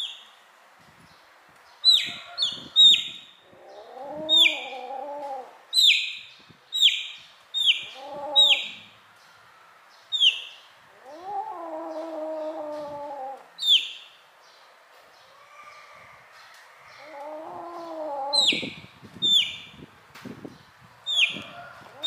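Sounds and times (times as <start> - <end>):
chick peeping: 1.8 - 3.2, 10.1 - 10.6, 12.0 - 14.0, 18.4 - 19.6, 21.1 - 22.0.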